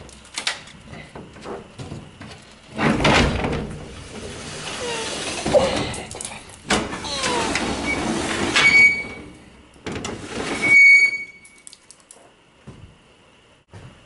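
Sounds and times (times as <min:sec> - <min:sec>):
heavy sliding doors scraping: 0:01.6 - 0:06.1, 0:06.7 - 0:11.3
metal squeals: 0:06.9 - 0:09.4, 0:10.4 - 0:11.5.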